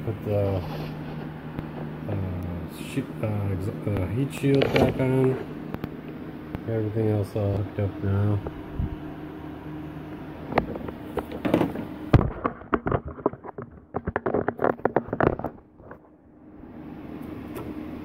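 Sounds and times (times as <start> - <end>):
steady low hum: 0.0 - 18.0
clicks knocks and rattles of handling: 10.5 - 16.0.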